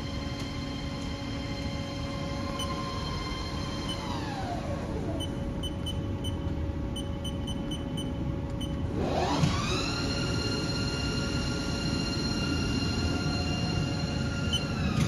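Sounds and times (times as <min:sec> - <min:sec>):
steady machine hum: 0:00.0 - 0:15.0
lathe spindle whining: 0:08.9 - 0:15.0.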